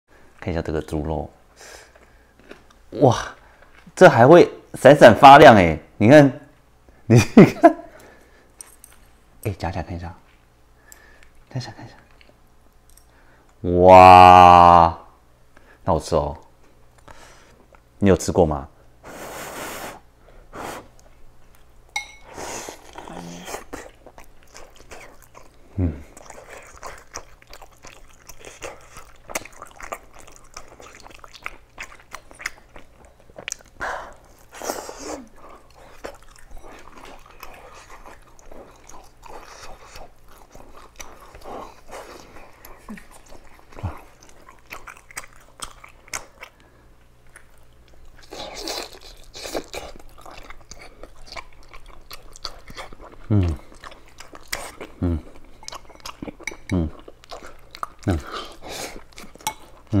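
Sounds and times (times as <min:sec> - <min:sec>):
biting and chewing: 0:22.8 - 0:34.6, 0:35.4 - 1:00.0.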